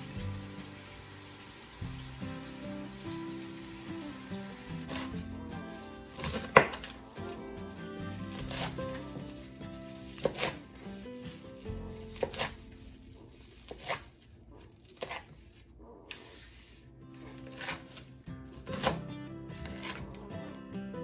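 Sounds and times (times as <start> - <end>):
soft background music: 0.0 - 14.4, 16.3 - 21.0
knife chopping on cutting board: 6.1 - 7.0, 8.2 - 14.2, 14.8 - 15.3, 17.3 - 20.2.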